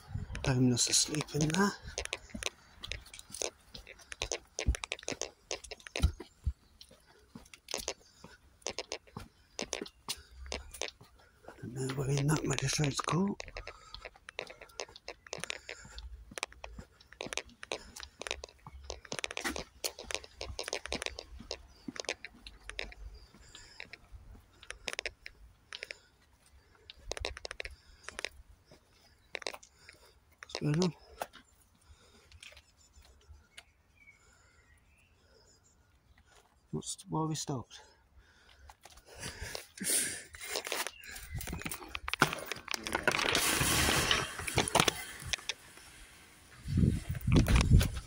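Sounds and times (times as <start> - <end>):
footsteps crunching on grit: 0.4 - 25.1.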